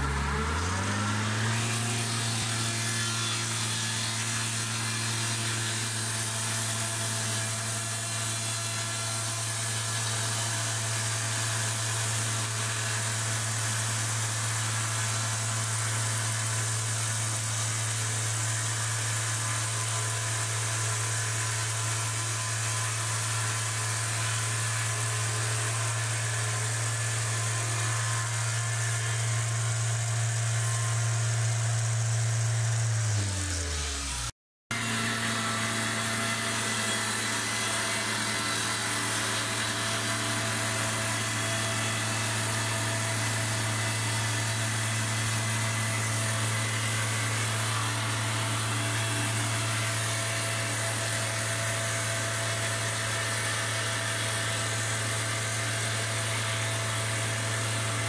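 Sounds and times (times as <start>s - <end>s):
diesel engine drone: 0.0s - 6.2s
circular saw cutting log: 0.0s - 58.0s.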